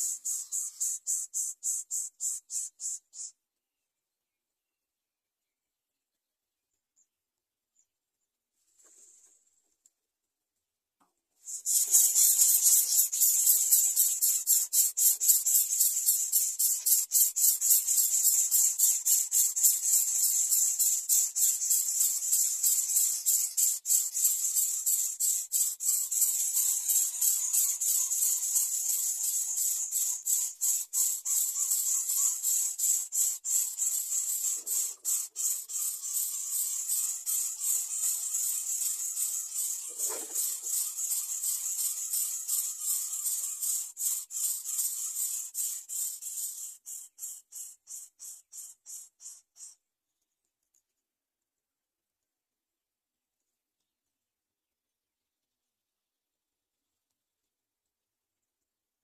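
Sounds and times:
nestlings begging with hissy rasps: 0:00.0 - 0:03.4, 0:11.4 - 0:49.8.

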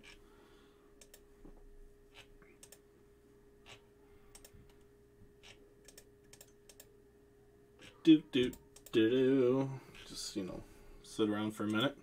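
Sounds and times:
faint steady hum: 0:00.0 - 0:12.0
computer mouse clicks: 0:01.0 - 0:01.2, 0:02.1 - 0:02.8, 0:03.7 - 0:04.8, 0:05.4 - 0:06.9, 0:07.8 - 0:09.0.

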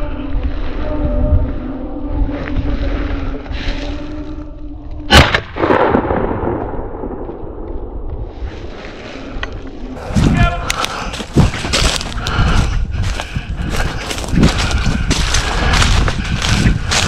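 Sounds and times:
loud shotgun blast: 0:05.1 - 0:07.2.

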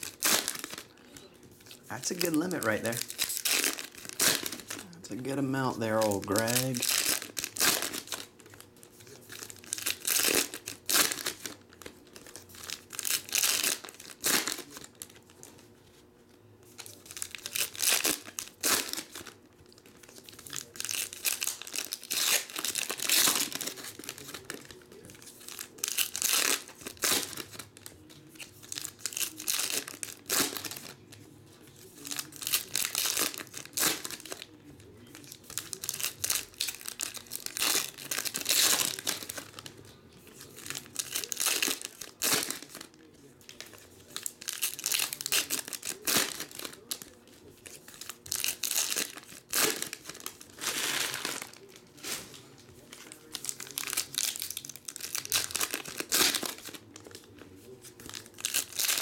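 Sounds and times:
foil wrappers tearing and crinkling: 0:00.0 - 0:15.6, 0:16.8 - 0:59.0.

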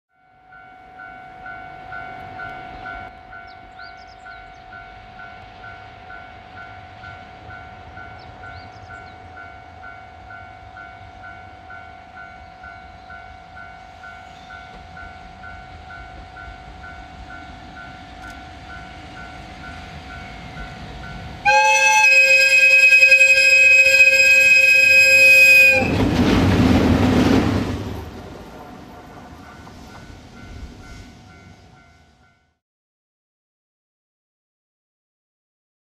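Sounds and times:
electric locomotive rumble: 0:00.3 - 0:32.3
locomotive air horn blast: 0:21.4 - 0:26.1.

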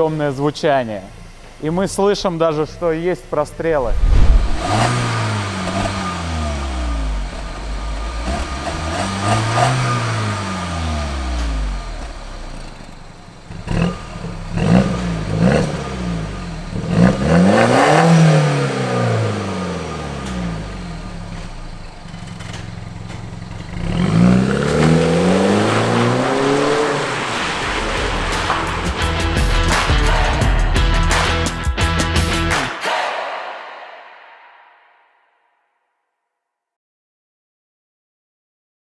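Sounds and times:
car exhaust revving: 0:01.1 - 0:29.9
car accelerating away: 0:03.6 - 0:29.3
exhaust pops and crackles: 0:21.4 - 0:23.9, 0:27.1 - 0:29.0.

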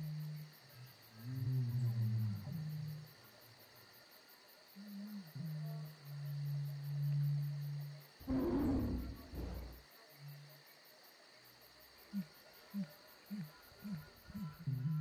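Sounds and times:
deep animal-like roar: 0:08.2 - 0:09.8
short rising calls: 0:08.3 - 0:09.8.

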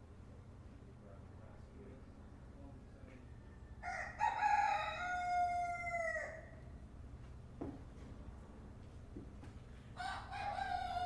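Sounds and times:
rooster crowing: 0:03.4 - 0:06.6, 0:10.0 - 0:11.0.

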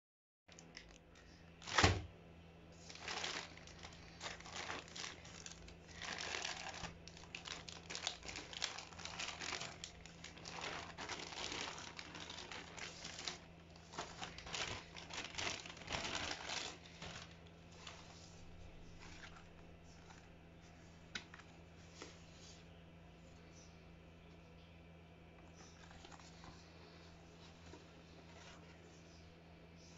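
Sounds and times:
steady low hum: 0:00.5 - 0:29.9
plastic bag crinkling: 0:01.6 - 0:02.0, 0:02.8 - 0:20.4, 0:25.6 - 0:28.8.

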